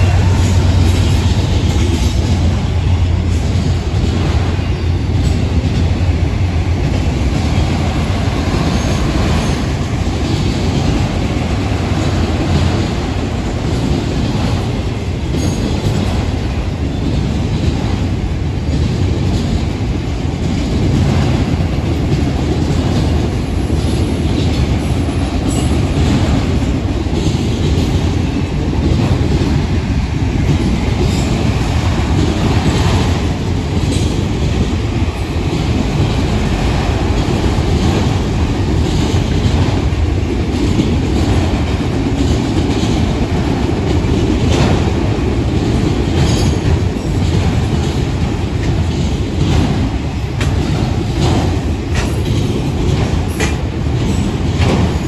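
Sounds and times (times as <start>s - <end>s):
steel wheels rumbling on rail: 0.0s - 55.0s
wheels clicking over rail joints: 18.7s - 55.0s.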